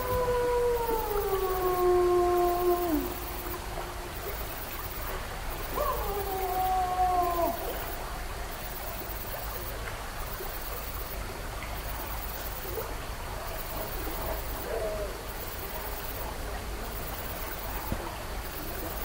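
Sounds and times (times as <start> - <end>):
animal howl: 0.0 - 4.4, 5.6 - 7.9
steady background hiss: 0.0 - 19.0.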